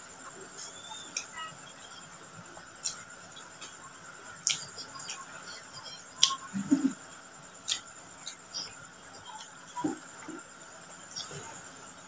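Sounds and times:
low murmur: 0.0s - 12.0s
lip smacks and clicks: 4.4s - 5.2s, 6.2s - 6.9s.

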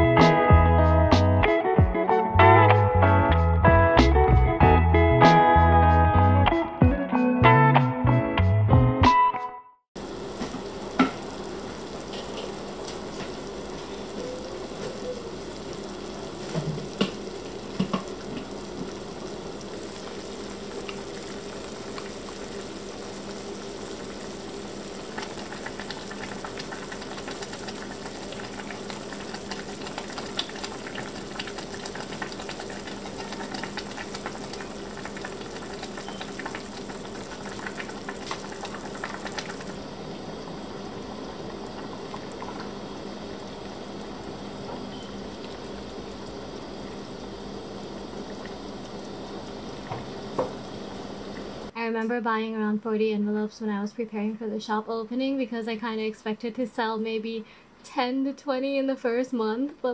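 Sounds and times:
stew bubbling in pot: 10.0s - 51.8s.

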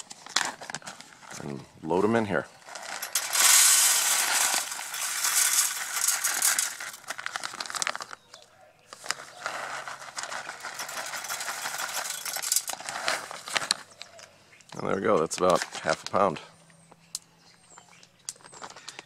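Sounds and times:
coffee beans clattering into metal sifter: 2.6s - 8.2s, 9.0s - 13.8s
plastic bag crinkling: 2.6s - 14.1s.

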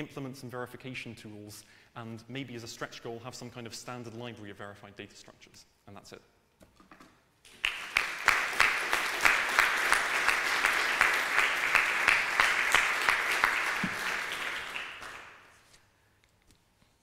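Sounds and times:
audience applauding: 7.5s - 15.5s.

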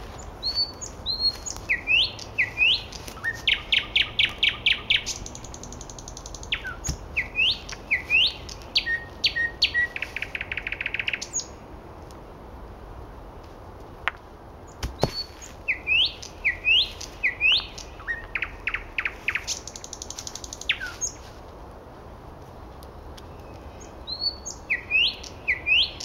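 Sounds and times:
nightingale singing: 0.0s - 11.6s, 14.7s - 21.3s, 23.2s - 26.0s.

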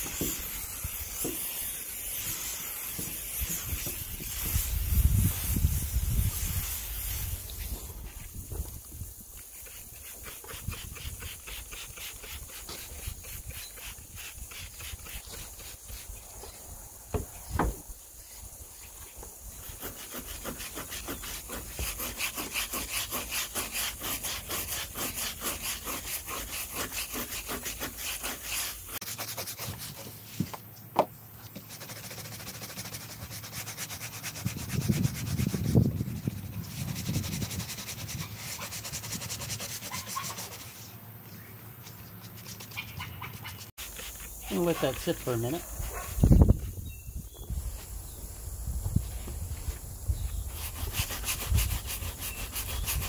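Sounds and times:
brush scrubbing wet rubber: 0.0s - 8.5s, 9.4s - 16.4s, 19.6s - 30.4s, 31.5s - 40.9s, 42.2s - 46.3s, 50.5s - 53.0s.

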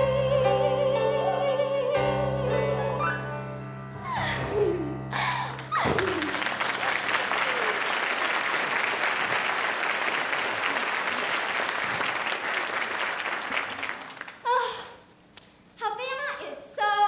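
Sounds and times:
audience applauding: 5.5s - 14.5s.

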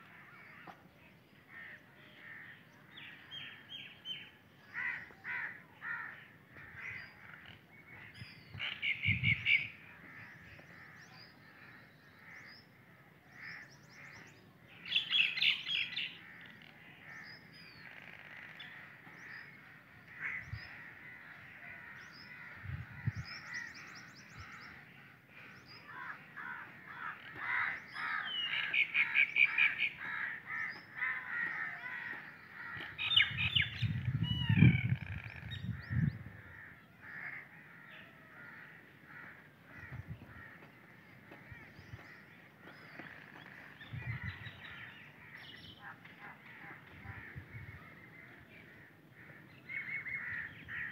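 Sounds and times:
small birds chirping: 0.1s - 36.8s
bird calls in rapid bursts: 25.8s - 37.5s.

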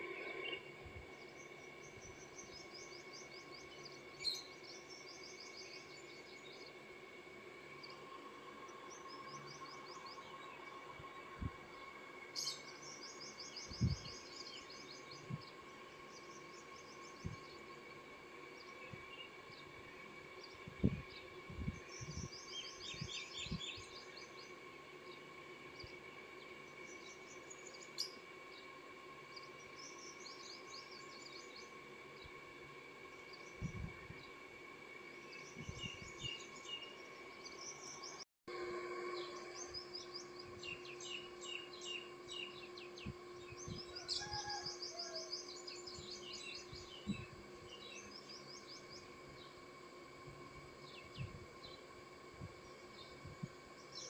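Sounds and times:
small birds chirping: 0.0s - 6.8s, 7.7s - 32.4s, 35.1s - 38.2s, 39.1s - 49.8s.

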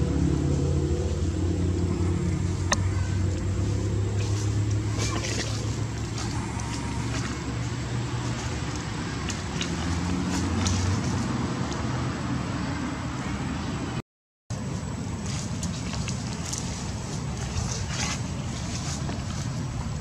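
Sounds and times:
low hum: 0.0s - 12.8s
outdoor background rumble and hiss: 0.0s - 20.0s.

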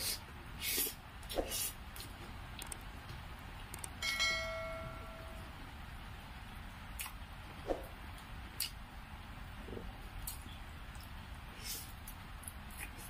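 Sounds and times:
metal dish clinking and ringing: 4.0s - 5.4s.

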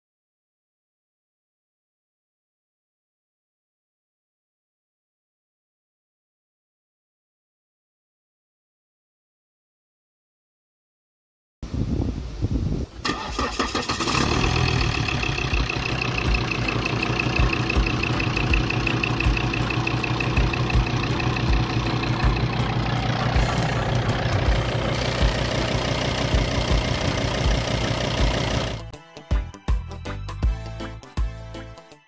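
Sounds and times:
diesel engine starting and idling: 13.0s - 28.9s.

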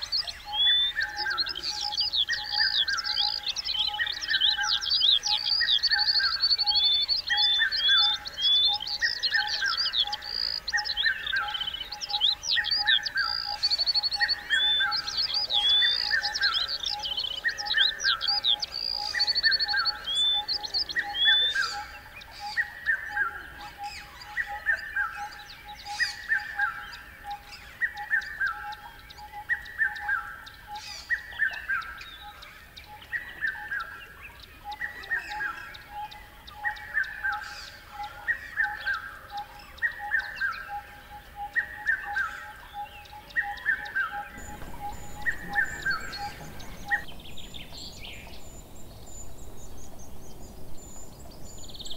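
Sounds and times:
high bird chirps: 0.0s - 51.9s
bird downward-sweeping call: 41.7s - 49.4s
bird fast pulsing call: 42.4s - 48.5s.

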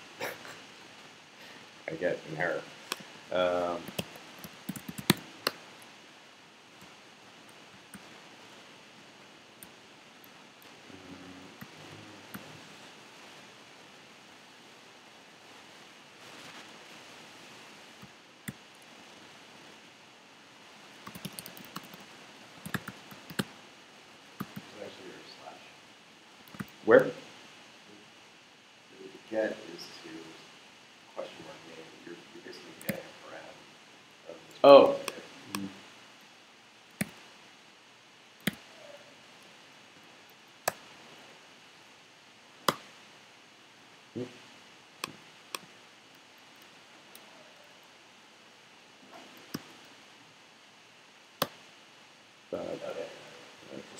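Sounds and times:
low room hiss: 0.0s - 53.9s
laptop clicks: 3.9s - 5.6s.

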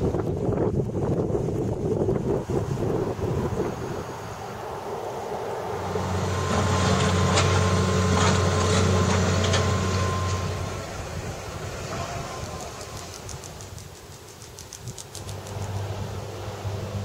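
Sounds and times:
heavy vehicle engine droning: 2.4s - 13.4s, 15.2s - 17.0s.

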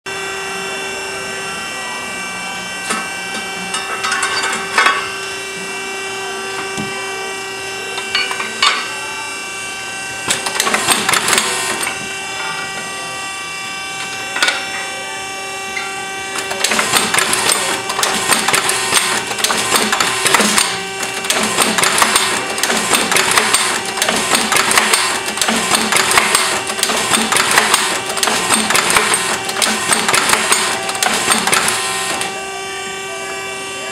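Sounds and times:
machine humming: 0.1s - 33.9s
machine clicking and rattling: 10.3s - 11.8s, 16.4s - 32.3s.

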